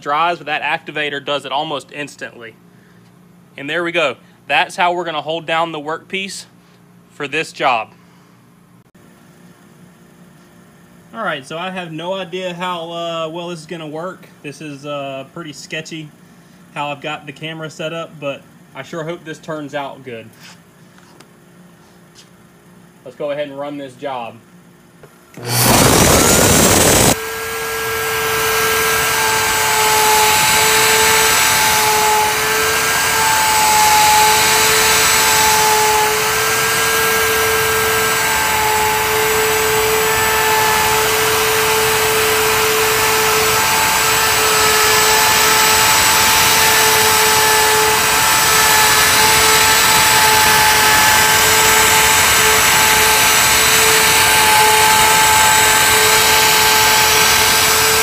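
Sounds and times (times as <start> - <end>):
router spindle whining: 25.3 - 58.0
router bit cutting wood: 25.4 - 58.0.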